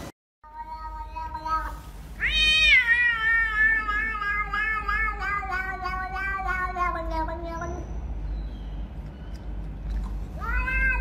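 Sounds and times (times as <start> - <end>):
cat meowing: 0.4 - 7.8, 10.4 - 11.0.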